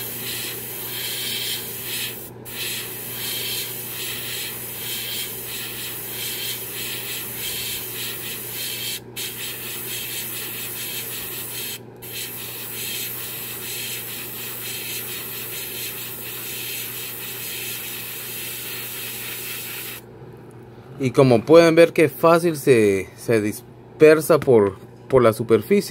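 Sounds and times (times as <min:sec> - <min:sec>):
airbrush spraying hiss: 0:00.0 - 0:20.0.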